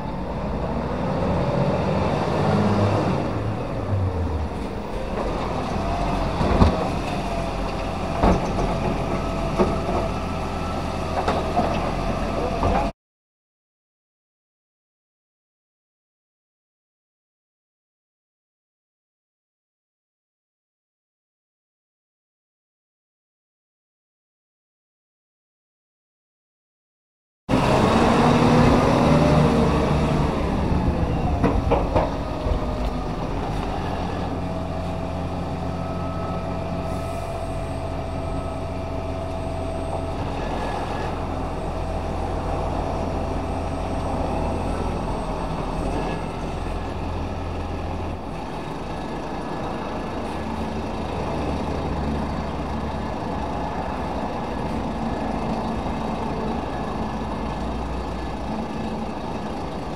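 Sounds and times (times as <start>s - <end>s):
garbage truck diesel engine: 0.0s - 12.9s, 27.5s - 59.9s.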